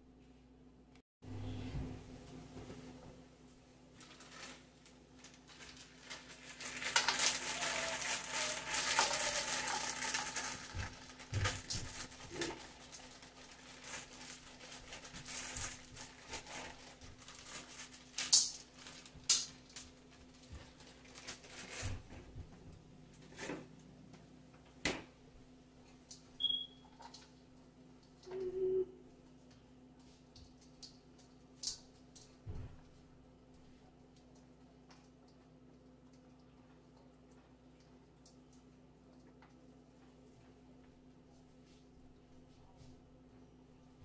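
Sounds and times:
plastic bag crinkling: 0:03.9 - 0:22.0
frozen vegetables rattling into wok: 0:05.3 - 0:19.8.

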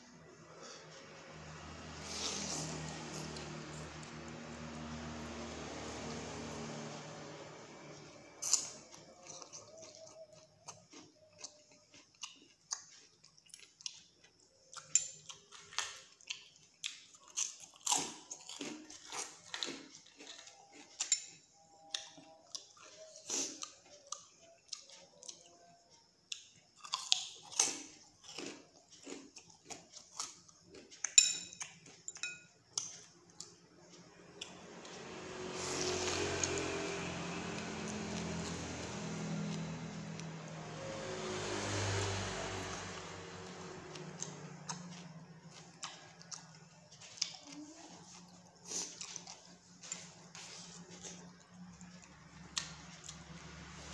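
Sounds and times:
motor vehicle engine: 0:00.0 - 0:09.8, 0:33.2 - 0:53.9
noodles slurped and chewed: 0:00.5 - 0:06.8, 0:41.2 - 0:53.9.

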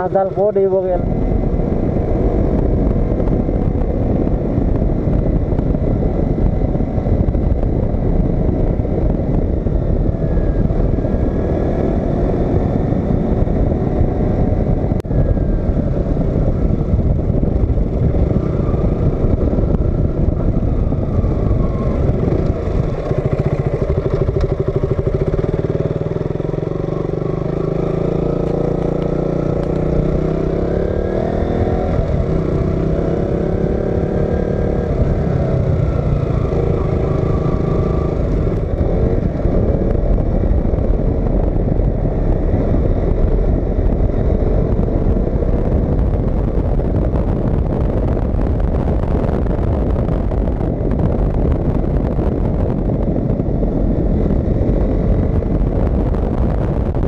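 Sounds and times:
motorcycle engine accelerating: 0:00.0 - 0:57.0
wind and road noise: 0:00.0 - 0:57.0.

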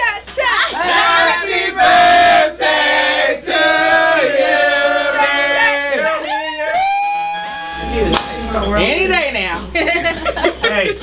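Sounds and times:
group singing loudly: 0:00.7 - 0:06.1
people whooping: 0:06.0 - 0:08.7.

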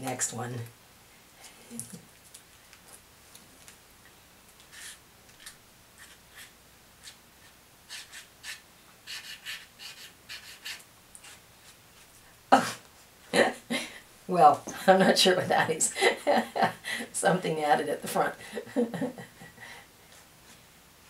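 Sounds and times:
packet scratching across paper: 0:04.6 - 0:12.1.

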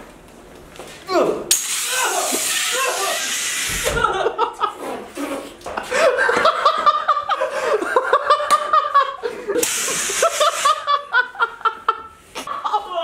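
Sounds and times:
fire extinguisher spraying: 0:01.5 - 0:04.1, 0:09.6 - 0:10.9
people laughing: 0:02.7 - 0:13.0.

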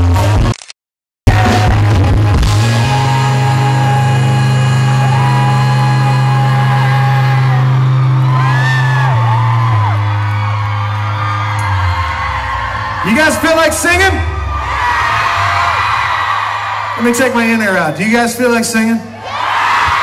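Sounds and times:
rock band chord ringing: 0:01.3 - 0:12.3
fans whooping: 0:01.3 - 0:20.0.

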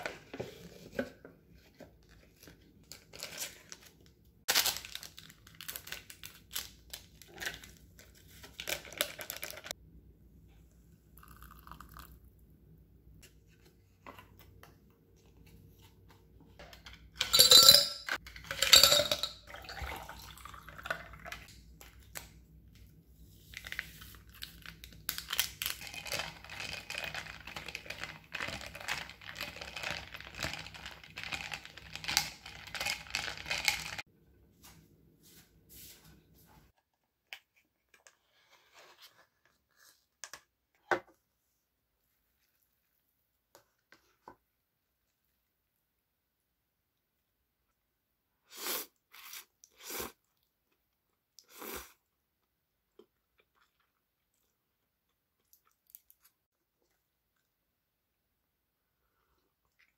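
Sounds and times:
packaging crinkling: 0:04.5 - 0:09.7
ice clinking in a glass: 0:17.2 - 0:19.7.

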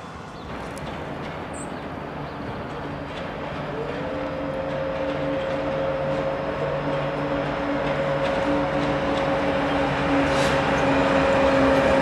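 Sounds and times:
diesel locomotives running: 0:00.0 - 0:12.0.

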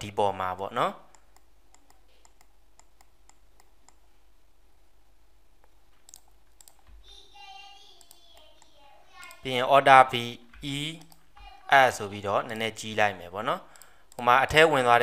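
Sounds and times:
mouse and keyboard clicks: 0:01.1 - 0:04.0, 0:06.0 - 0:06.9.

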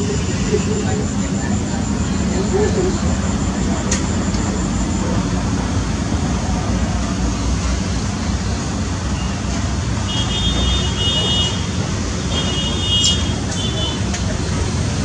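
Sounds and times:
high flat tone: 0:00.0 - 0:07.4
rumbling background noise: 0:00.0 - 0:15.0.

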